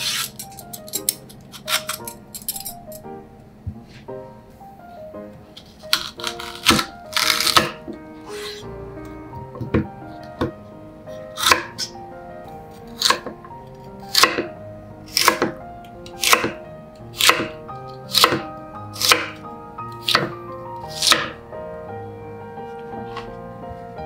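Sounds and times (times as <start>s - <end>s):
knife slicing on cutting board: 8.3s - 8.6s.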